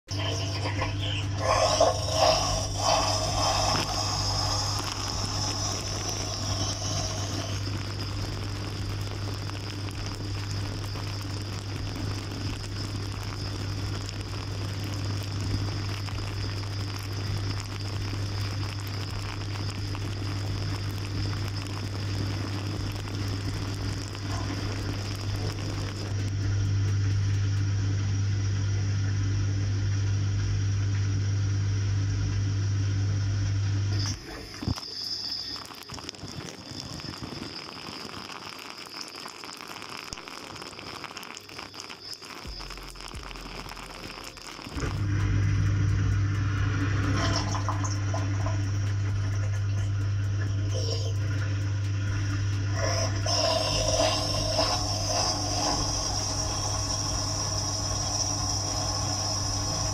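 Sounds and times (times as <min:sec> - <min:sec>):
dishwasher hum: 0:00.1 - 0:07.6, 0:44.7 - 0:59.9.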